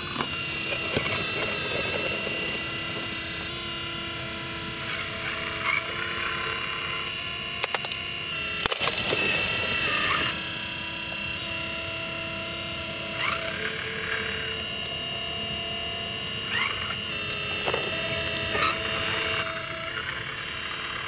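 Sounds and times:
hydraulic pump whine: 0:00.0 - 0:21.0.

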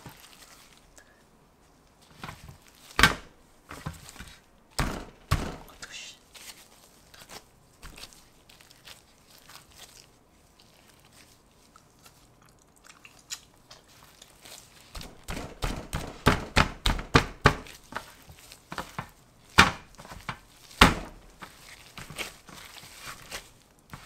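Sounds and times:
dough squishing: 0:00.0 - 0:24.0
hands slapping wet dough: 0:02.1 - 0:10.1, 0:13.2 - 0:24.0.

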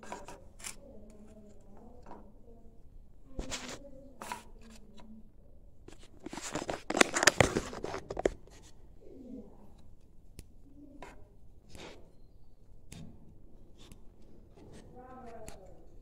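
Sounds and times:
bird seed rustling in plastic dish: 0:05.9 - 0:08.4.

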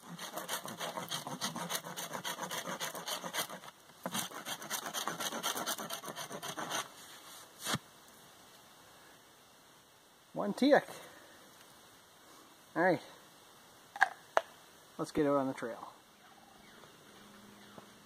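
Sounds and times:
knife scraping bark: 0:00.0 - 0:07.0.

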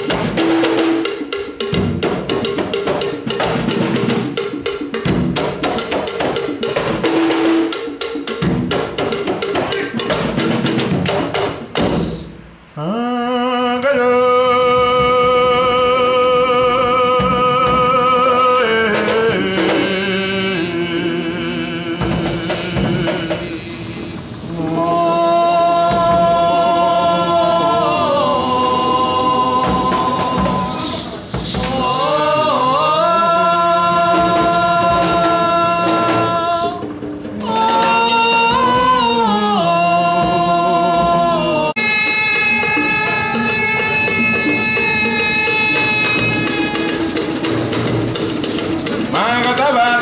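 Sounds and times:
drums and light percussion: 0:00.0 - 0:12.7, 0:14.6 - 0:50.0
person singing into a microphone: 0:12.8 - 0:47.4, 0:49.1 - 0:50.0.

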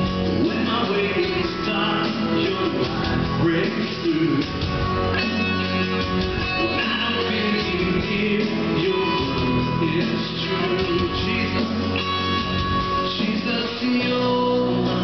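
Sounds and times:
live band playing: 0:00.0 - 0:15.0.

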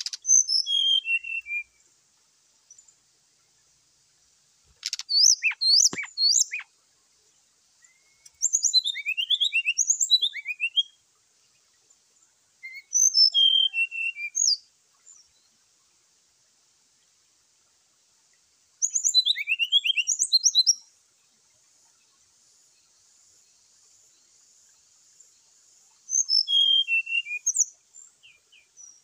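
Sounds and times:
bird singing whistled notes: 0:00.0 - 0:01.8, 0:04.8 - 0:06.7, 0:07.8 - 0:11.0, 0:12.6 - 0:15.5, 0:18.8 - 0:20.9, 0:26.0 - 0:29.0.

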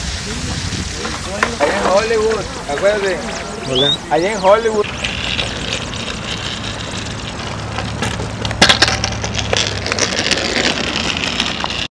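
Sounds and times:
longboard clacking on asphalt: 0:00.5 - 0:11.9.

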